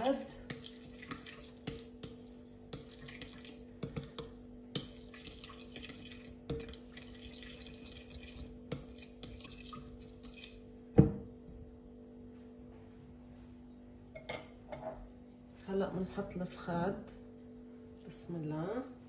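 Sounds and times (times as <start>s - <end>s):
spoon stirring liquid: 0.0s - 10.7s
faint steady hum: 0.0s - 19.0s.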